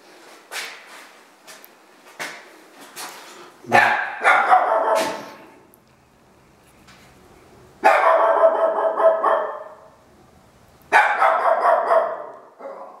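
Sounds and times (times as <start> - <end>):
dog barking: 3.7 - 5.4, 7.8 - 9.9, 10.9 - 13.0.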